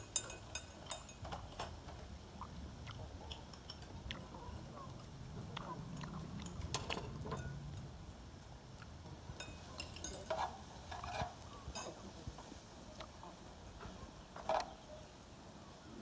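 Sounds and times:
spoons clinking on bowls: 0.0s - 1.6s, 3.3s - 4.0s, 6.4s - 7.7s, 9.4s - 12.0s
faint chewing: 0.0s - 15.0s
low steady hum: 0.0s - 16.0s.

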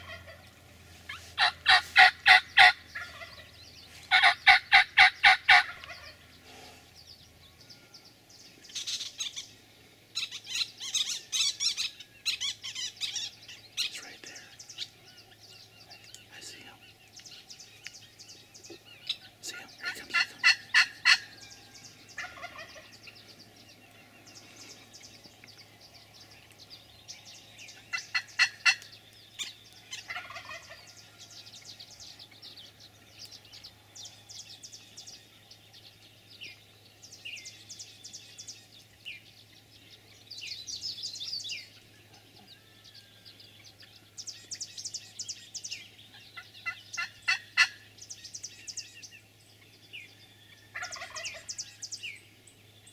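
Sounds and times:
turkey gobbling: 0.0s - 0.5s, 1.1s - 6.2s, 19.1s - 21.4s, 22.2s - 22.9s, 27.9s - 28.9s, 29.9s - 30.9s, 46.4s - 47.8s, 50.7s - 51.5s.

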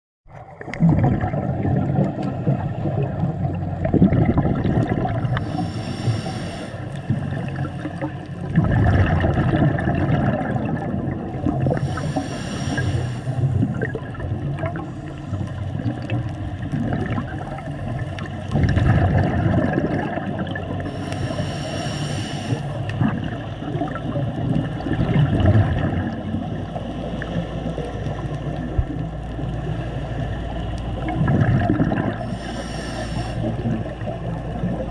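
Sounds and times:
bubbling of exhaled air: 0.3s - 34.9s
breathing through a regulator: 5.2s - 8.5s, 11.6s - 13.9s, 20.8s - 23.1s, 31.9s - 34.4s
short hisses: 32.4s - 33.5s.

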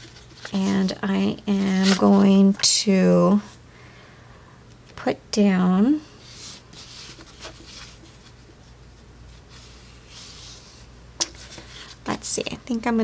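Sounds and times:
paper sticker sheets rustling: 0.0s - 2.8s, 6.2s - 8.5s.

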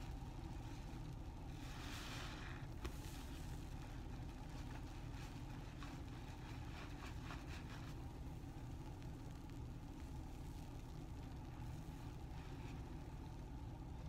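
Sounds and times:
steady low hum: 0.0s - 14.0s
sponge squelching in foam: 0.6s - 8.4s.

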